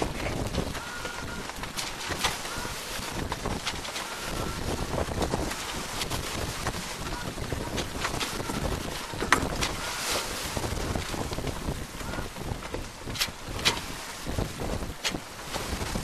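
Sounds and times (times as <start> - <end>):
choppy water along hull: 0.0 - 16.0
wind buffeting microphone: 0.0 - 16.0.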